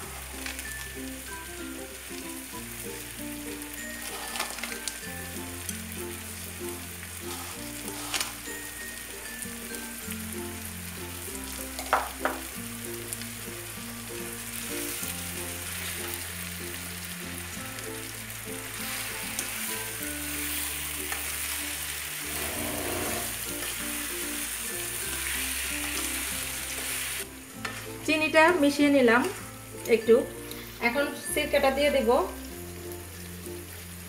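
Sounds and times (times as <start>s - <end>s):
pickle sizzling in oil: 0.0s - 34.0s
soft background music: 0.0s - 34.0s
spatula stirring in pan: 7.2s - 8.7s.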